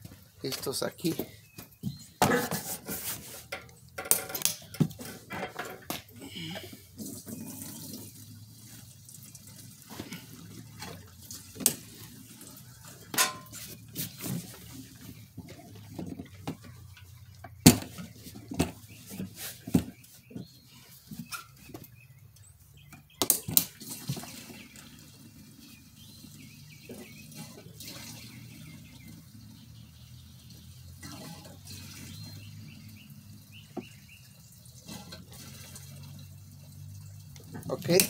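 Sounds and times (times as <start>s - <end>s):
gasoline pouring into tank: 4.3s - 16.9s, 23.5s - 38.0s.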